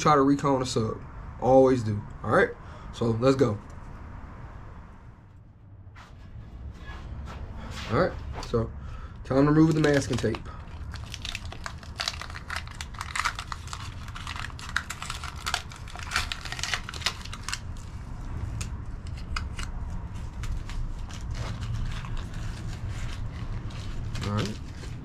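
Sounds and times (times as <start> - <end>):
tape peeling and crinkling: 9.4 - 25.0.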